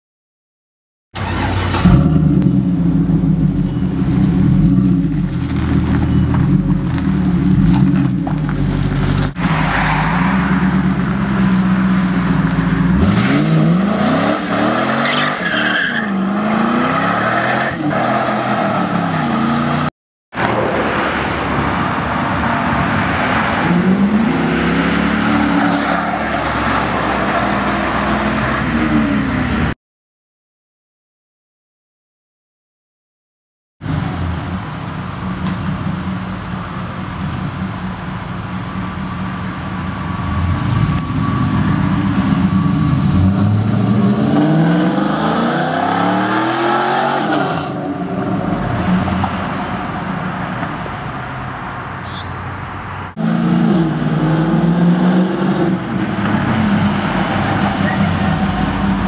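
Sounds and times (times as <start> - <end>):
car engine revving: 1.2 - 29.7, 40.1 - 50.5, 53.1 - 59.0
tire squeal: 9.4 - 11.9, 13.3 - 19.6, 25.2 - 28.2, 39.9 - 44.7, 56.4 - 59.0.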